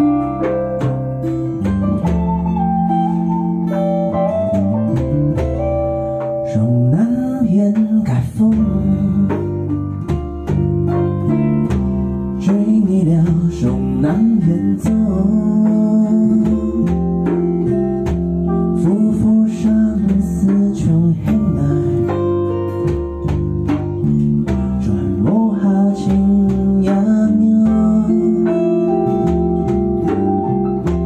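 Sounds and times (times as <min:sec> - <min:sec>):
bass guitar: 0:00.0 - 0:31.0
electric guitar: 0:00.0 - 0:31.0
strummed acoustic guitar: 0:00.0 - 0:31.0
man singing: 0:06.4 - 0:10.0, 0:12.4 - 0:17.8, 0:18.7 - 0:22.7, 0:24.1 - 0:30.4.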